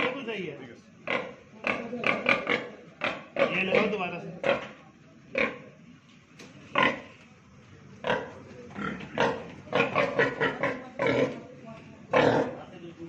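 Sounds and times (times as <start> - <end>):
pig grunting: 1.0 - 4.7, 5.3 - 5.8, 6.7 - 7.1, 8.0 - 11.5, 12.1 - 12.7.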